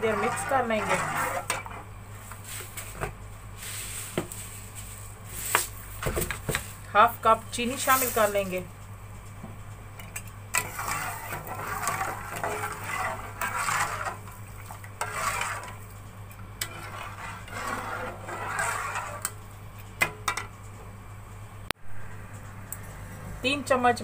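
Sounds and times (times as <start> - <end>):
spoon scraping a steel pot: 0.0 - 1.8, 10.5 - 15.9, 16.6 - 19.4.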